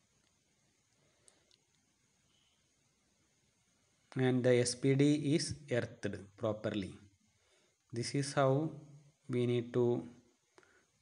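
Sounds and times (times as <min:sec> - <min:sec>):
faint ticks: 0:00.2 - 0:02.6.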